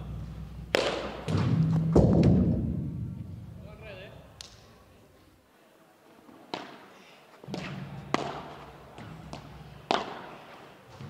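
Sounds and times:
ball struck by rackets: 0.6s - 2.7s, 7.5s - 10.4s
ball bouncing on court: 7.5s - 10.3s.

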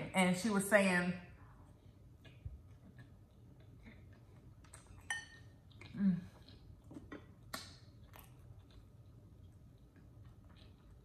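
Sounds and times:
fork clinking on ceramic bowl: 4.9s - 5.5s.

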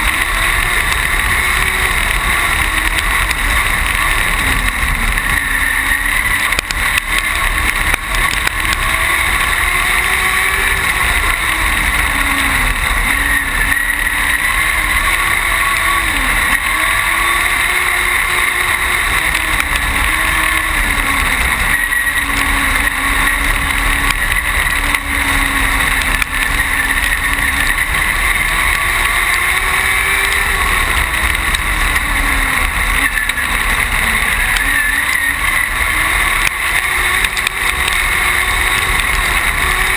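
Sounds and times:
race car engine revving: 0.0s - 39.9s
wind and road noise: 0.0s - 39.9s.

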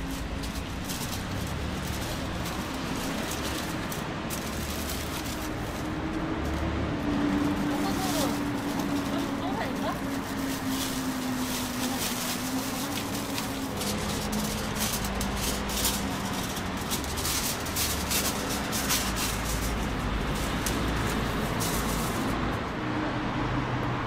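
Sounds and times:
plastic bag rustling: 0.0s - 22.7s.

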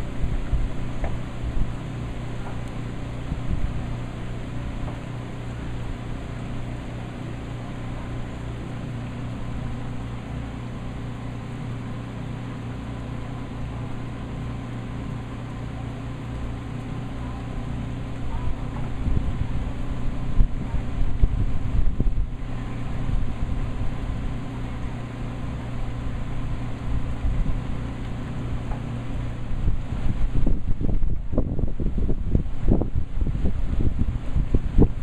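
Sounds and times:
wind buffeting microphone: 0.0s - 6.9s, 18.0s - 35.0s
outdoor wash: 0.0s - 35.0s.

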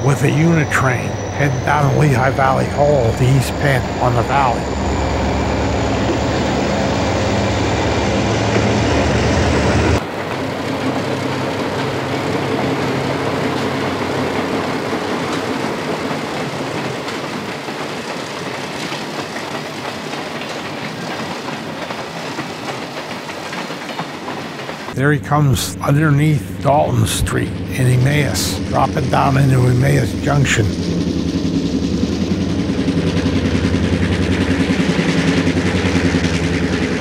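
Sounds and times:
train wheels clattering on rails: 0.0s - 25.0s
diesel locomotive engine rumble: 0.0s - 37.0s.

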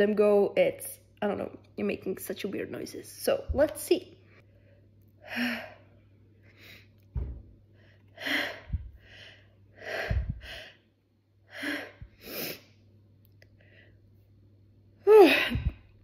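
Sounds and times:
dull low thumps: 7.2s - 7.6s, 8.6s - 9.0s, 10.1s - 10.5s.

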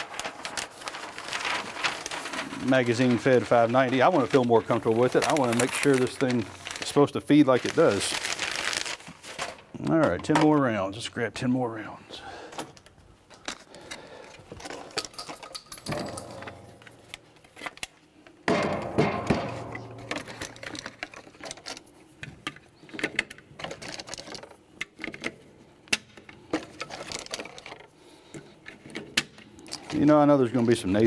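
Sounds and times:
shell handling noise: 12.6s - 25.3s.

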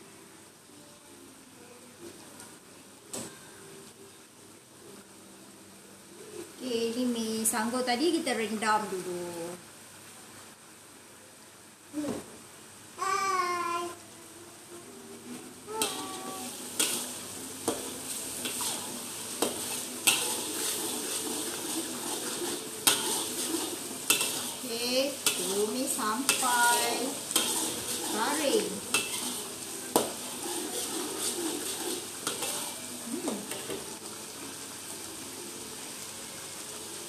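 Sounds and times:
food sizzling in hot oil: 6.0s - 10.9s, 15.1s - 37.0s
metal spatula scraping wok: 15.7s - 33.8s.

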